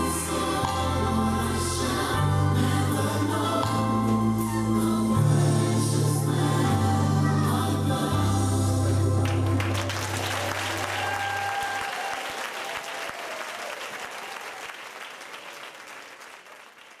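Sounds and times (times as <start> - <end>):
audience applauding: 8.9 - 17.0.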